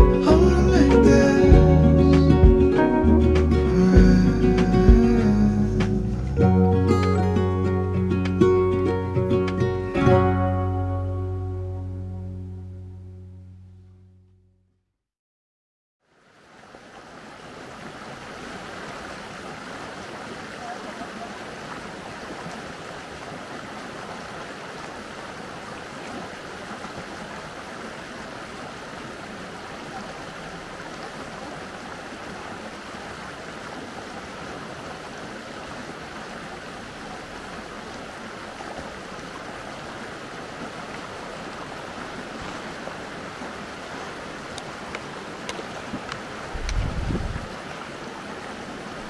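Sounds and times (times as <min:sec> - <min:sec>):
stream flowing water: 0:00.0 - 0:12.4, 0:16.0 - 0:49.0.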